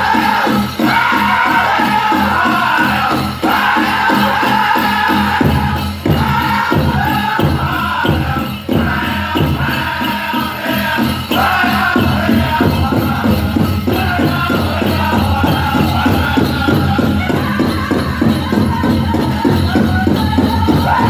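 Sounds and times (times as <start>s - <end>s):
big drum beating: 0.0s - 21.0s
group singing in unison: 0.0s - 21.0s.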